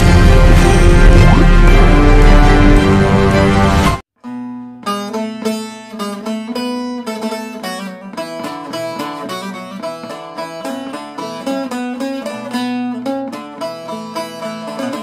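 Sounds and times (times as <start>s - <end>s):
plucked lute melody: 4.2s - 15.0s.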